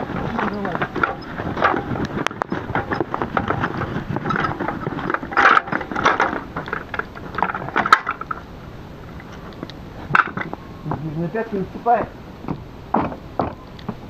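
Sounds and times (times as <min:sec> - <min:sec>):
metal water can rattling on cart: 0:00.0 - 0:08.4.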